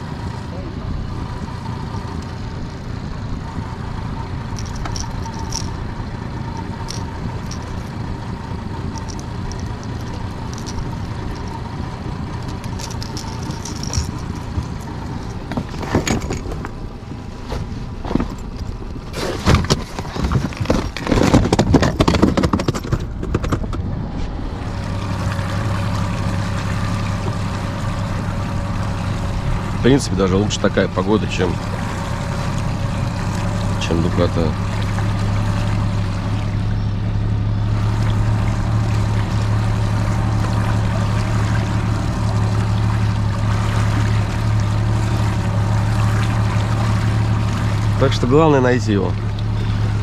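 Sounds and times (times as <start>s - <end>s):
outboard motor running: 0.0s - 50.0s
knocking and rattling in boat: 4.4s - 23.9s.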